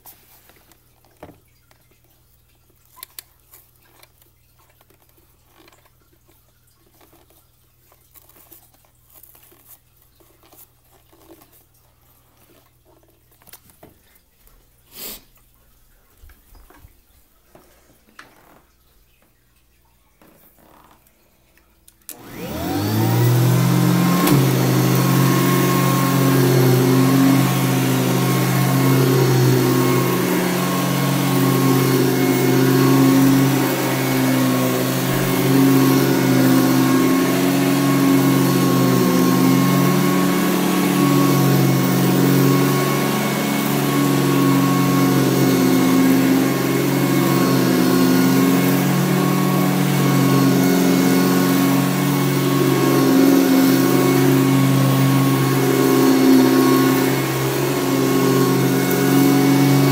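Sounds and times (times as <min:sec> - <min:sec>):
vacuum cleaner running on carpet: 0:22.1 - 0:59.9.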